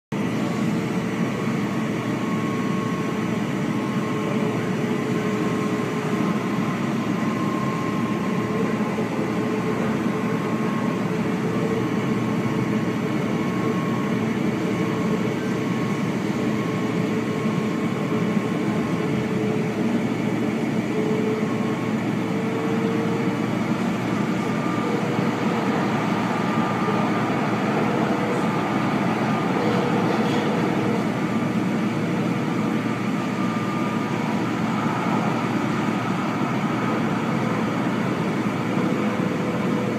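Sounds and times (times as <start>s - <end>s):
faint steady whine: 0.3s - 39.9s
wheels rumbling on rails: 8.1s - 39.9s.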